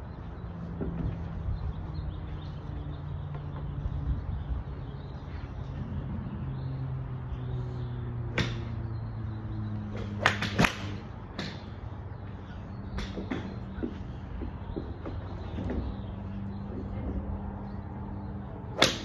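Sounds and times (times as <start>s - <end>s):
golf irons striking balls: 8.3s - 8.9s, 9.9s - 17.3s, 18.7s - 19.0s.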